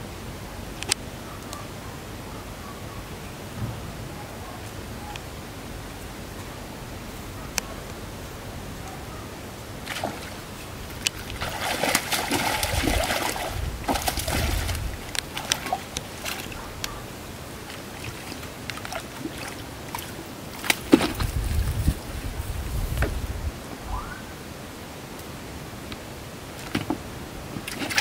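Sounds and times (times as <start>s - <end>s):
fish slapping on bank: 9.8s - 22.1s, 27.6s - 28.0s
fish splashing in water: 9.8s - 22.1s, 27.6s - 28.0s.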